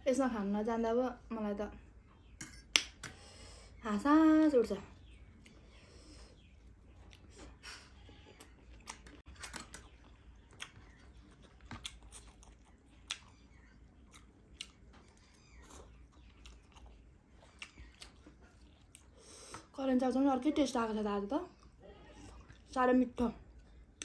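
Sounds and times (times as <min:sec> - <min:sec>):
mouth chewing crunchy food: 0:06.6 - 0:19.7.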